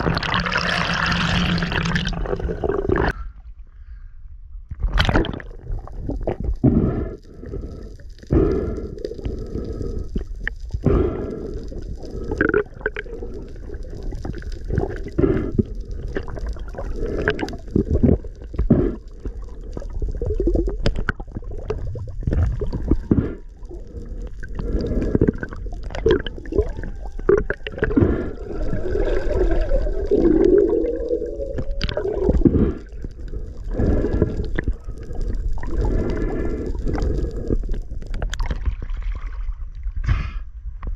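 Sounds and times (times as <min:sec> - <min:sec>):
muffled water gurgling and sloshing: 0:00.0 - 0:03.8, 0:04.4 - 0:40.9.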